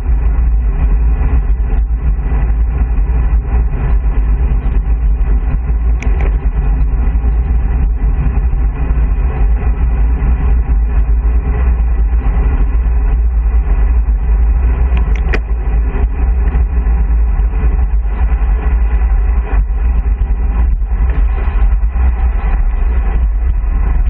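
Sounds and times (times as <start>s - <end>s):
wind rumble on microphone: 0.0s - 24.0s
sharp click: 15.0s - 15.4s.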